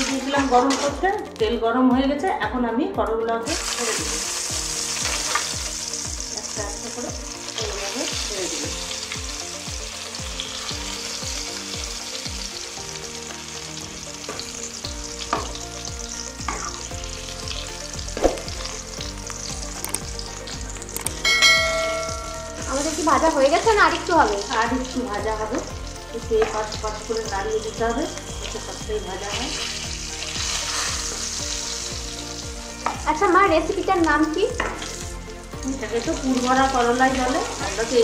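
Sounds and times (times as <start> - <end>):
vegetables sizzling in hot oil: 0.0 - 1.3, 3.4 - 38.0
short chime: 21.2 - 22.7.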